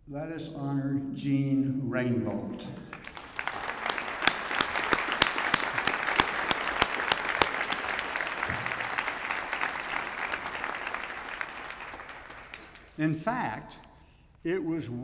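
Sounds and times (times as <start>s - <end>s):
sharp individual claps: 2.8s - 13.0s
audience applauding: 2.8s - 13.1s.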